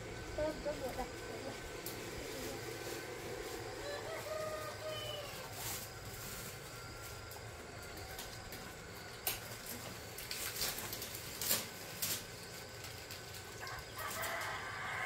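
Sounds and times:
plastic bags crinkling: 0:05.6 - 0:14.5.

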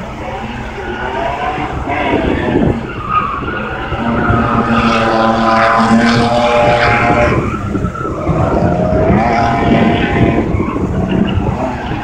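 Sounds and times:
car engine revving: 0:00.0 - 0:12.0
tyres skidding on tarmac: 0:00.0 - 0:12.0.

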